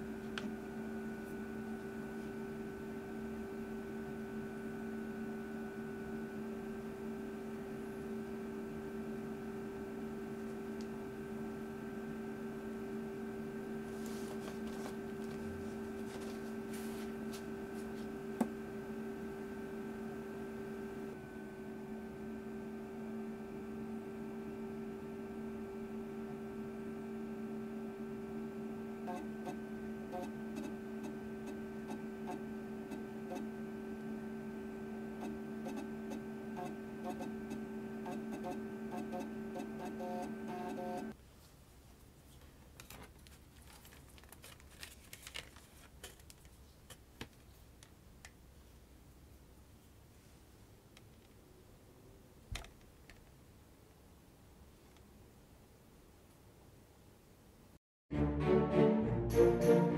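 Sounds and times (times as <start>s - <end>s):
computer electrical hum: 0.0s - 41.2s.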